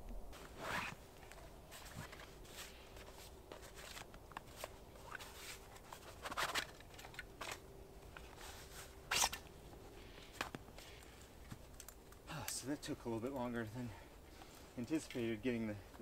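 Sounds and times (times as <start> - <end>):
straps and buckles rustling clicking: 0.4 - 16.0.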